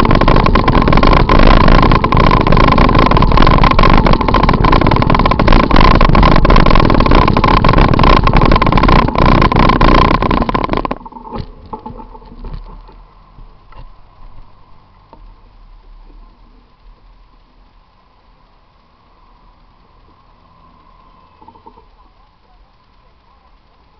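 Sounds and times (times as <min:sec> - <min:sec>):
camera rattling on bicycle: 0:00.0 - 0:23.9
road and wind noise: 0:00.0 - 0:23.9
faint street traffic: 0:12.7 - 0:23.9.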